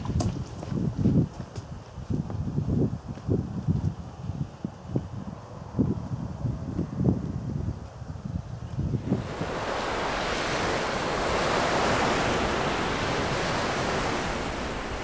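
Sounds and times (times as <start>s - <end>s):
wind buffeting microphone: 0.0s - 15.0s
even rushing noise: 9.0s - 15.0s.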